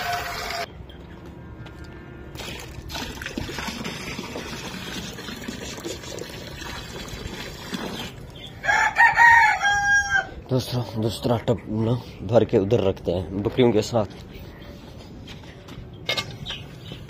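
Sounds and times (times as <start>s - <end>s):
rooster crowing: 0.0s - 0.7s, 8.6s - 10.4s
water pouring and splashing: 2.3s - 8.5s.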